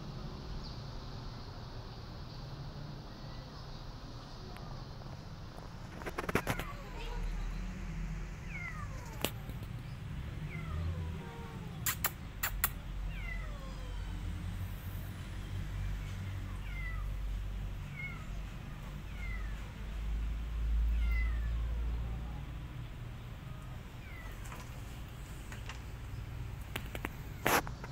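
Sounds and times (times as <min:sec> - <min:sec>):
kitten meowing: 0:10.5 - 0:14.3, 0:16.5 - 0:17.2, 0:20.9 - 0:21.8
sharp clicks: 0:11.8 - 0:12.8.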